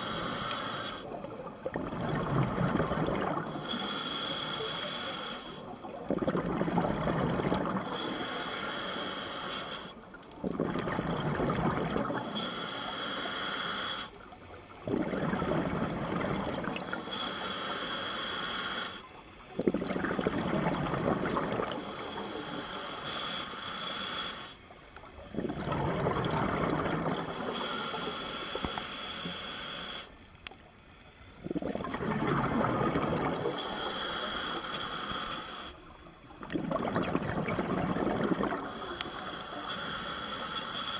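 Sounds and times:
diver breathing through regulator: 0.0s - 1.2s, 3.4s - 5.7s, 7.4s - 10.0s, 12.2s - 14.2s, 16.8s - 19.0s, 21.6s - 24.6s, 25.6s - 30.1s, 32.8s - 35.8s, 38.7s - 40.9s.

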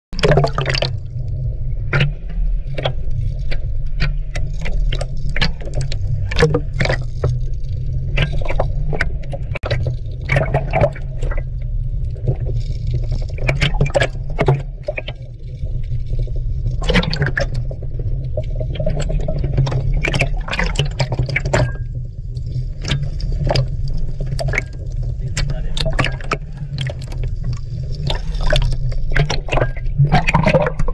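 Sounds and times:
low underwater rumble: 0.1s - 30.9s
water sloshing and splashing: 0.2s - 30.9s.

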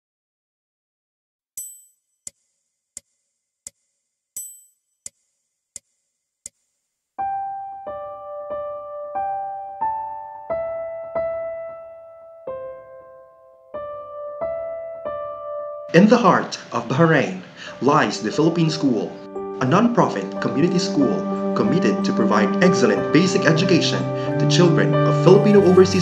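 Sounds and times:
sharp high ticking beat: 4.4s - 5.2s
piano notes: 7.2s - 26.0s.

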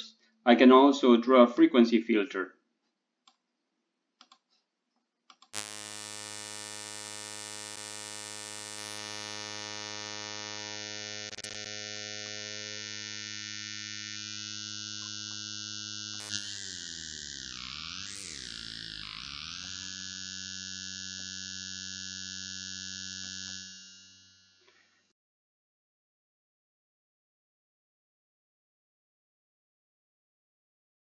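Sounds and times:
buzzy synthesizer note: 5.6s - 24.6s.

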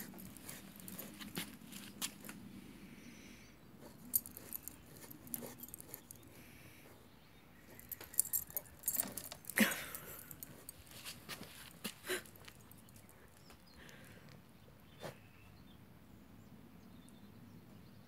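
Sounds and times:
collar tags jingling: 0.0s - 2.4s, 3.8s - 13.7s
dog paws scratching soil: 0.0s - 2.5s, 3.8s - 13.5s.

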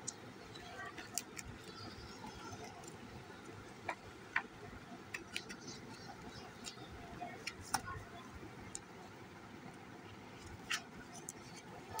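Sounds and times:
glossy pages being turned: 10.3s - 12.0s.

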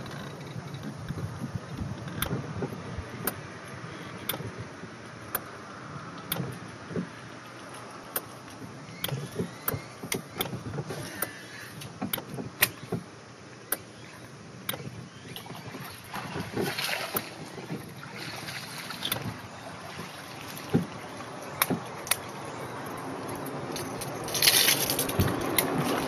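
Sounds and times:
water and wind noise: 0.0s - 26.0s.

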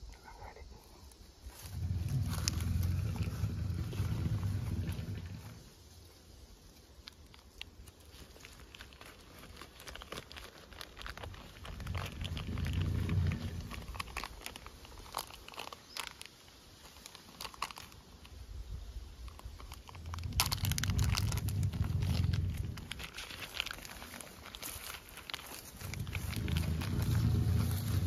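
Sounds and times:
dry leaves and twigs rustling: 0.2s - 28.0s
low rumbles: 1.4s - 5.9s, 11.0s - 15.4s, 19.3s - 28.0s.

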